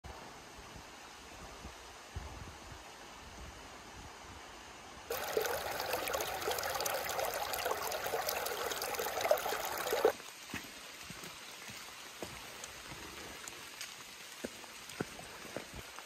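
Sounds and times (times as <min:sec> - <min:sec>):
stream running over rocks: 0:05.1 - 0:16.0.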